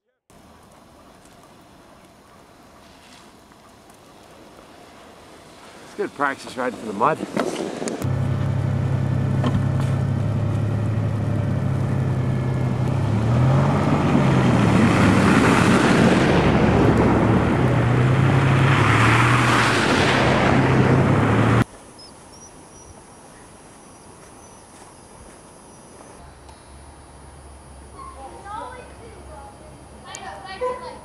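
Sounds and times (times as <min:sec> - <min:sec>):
truck engine revving: 0:08.0 - 0:21.6.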